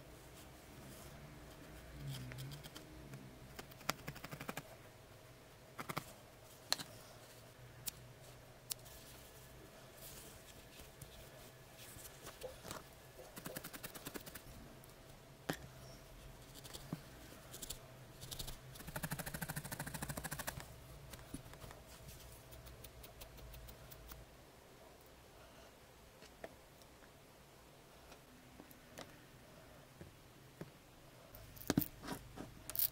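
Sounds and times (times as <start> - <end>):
felting needle jabbing wool: 17.5 - 21.6.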